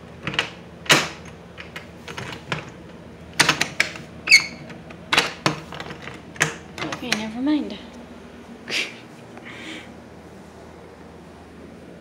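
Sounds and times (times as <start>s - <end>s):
doorknob and latch rattling: 0.2s - 7.3s.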